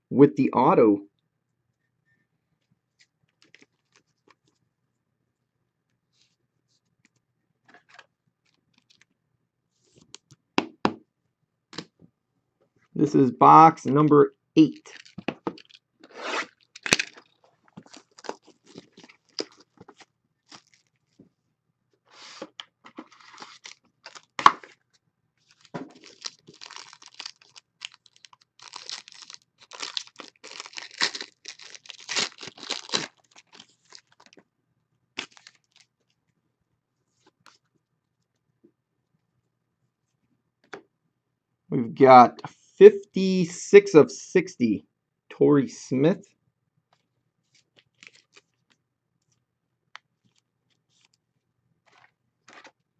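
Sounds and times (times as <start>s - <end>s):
card and packaging clicks and rustles: 14.9s - 15.8s, 16.4s - 21.2s, 22.4s - 24.8s, 25.4s - 34.4s, 35.2s - 36.2s, 47.5s - 49.4s, 51.8s - 52.8s
foil wrapper tearing and crinkling: 14.9s - 19.7s, 20.5s - 21.0s, 23.1s - 24.8s, 25.5s - 34.4s, 35.2s - 35.9s, 47.8s - 48.5s.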